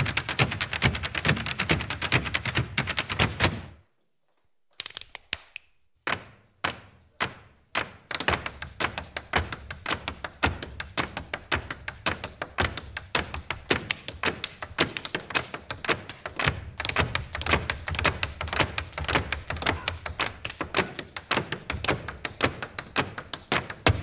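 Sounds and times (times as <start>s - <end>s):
hard shoes tapping on stage floor: 6.1s - 24.0s.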